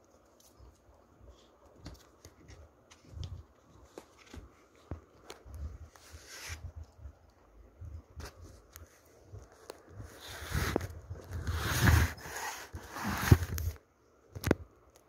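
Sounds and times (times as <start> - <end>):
brief scrape: 10.2 - 13.6.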